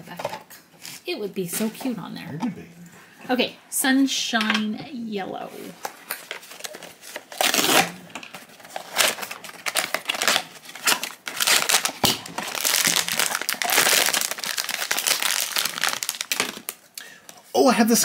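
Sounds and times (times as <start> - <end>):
foil pouch crinkling: 6.1 - 16.9.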